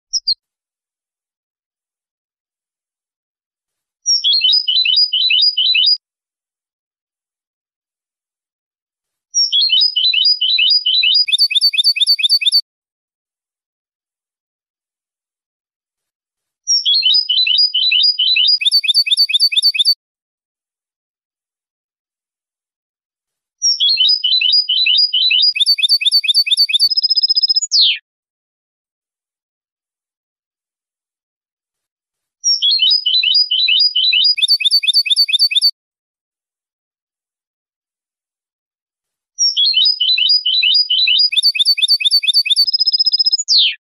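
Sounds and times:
goldfinch twittering song: 4.0s - 6.0s, 9.4s - 12.6s, 16.7s - 20.0s, 23.6s - 28.0s, 32.4s - 35.7s, 39.4s - 43.8s.

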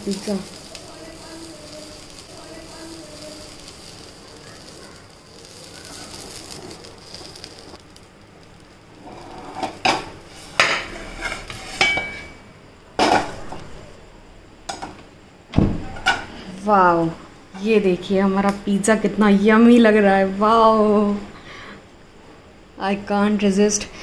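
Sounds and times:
faint steady hiss: 0.0s - 24.0s
metal spatula scraping frying pan: 9.0s - 12.4s.

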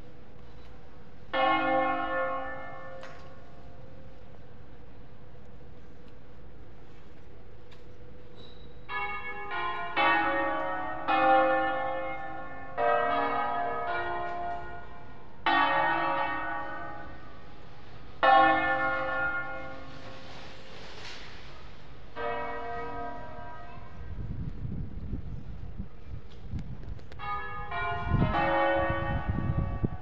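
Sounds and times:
church bells ringing: 1.2s - 4.6s, 8.9s - 20.8s, 21.8s - 24.3s, 27.2s - 30.0s.

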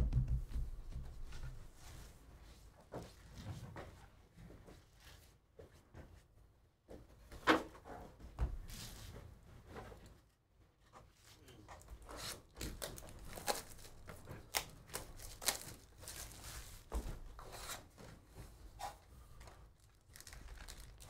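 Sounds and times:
foil packs rustling and crackling: 12.2s - 16.9s, 19.8s - 21.0s.

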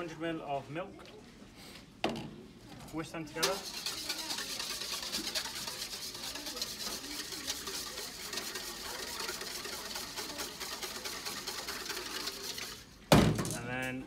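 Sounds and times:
wire whisk beating in metal bowl: 3.4s - 12.9s.

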